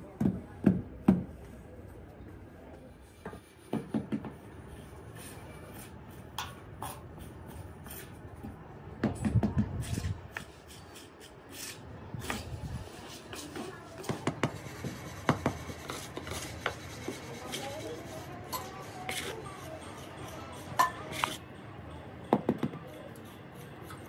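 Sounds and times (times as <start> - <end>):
scraping and handling noise: 2.8 - 21.4.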